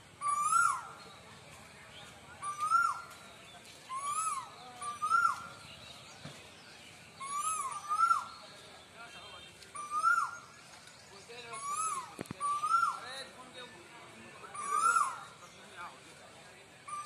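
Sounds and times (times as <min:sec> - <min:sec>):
cuckoo whistled calls: 0:00.2 - 0:01.2, 0:02.4 - 0:06.1, 0:07.1 - 0:08.6, 0:09.7 - 0:13.2, 0:14.4 - 0:15.6.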